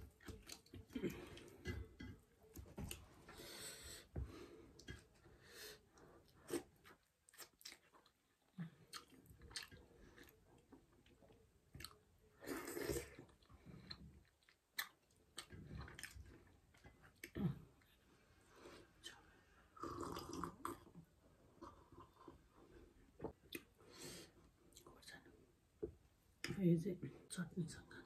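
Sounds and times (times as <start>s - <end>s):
person chewing: 0.1s - 3.0s, 6.2s - 17.9s.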